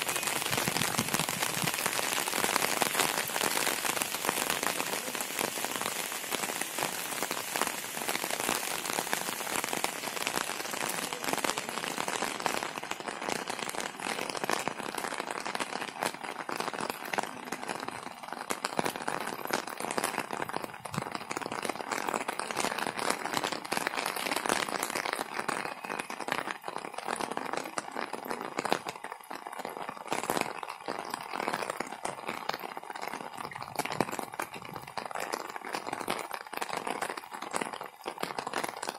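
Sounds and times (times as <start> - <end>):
raindrops clicking close by: 0.0 - 16.2, 16.8 - 38.9
steady rain hiss: 0.0 - 25.9.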